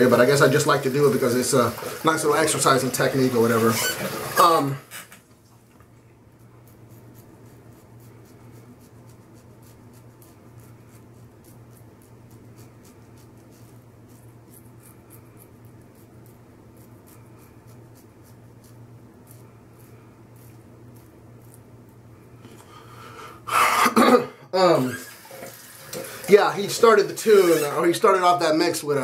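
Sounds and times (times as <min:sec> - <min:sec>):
razor scraping stubble: 0:00.1 - 0:05.2, 0:06.3 - 0:22.1, 0:26.6 - 0:28.3
steady low hum: 0:04.8 - 0:24.6.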